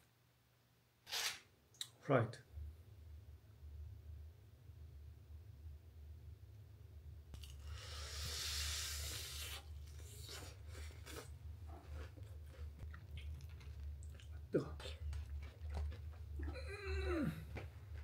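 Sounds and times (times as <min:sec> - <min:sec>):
crackly chewing: 0:09.8 - 0:16.6.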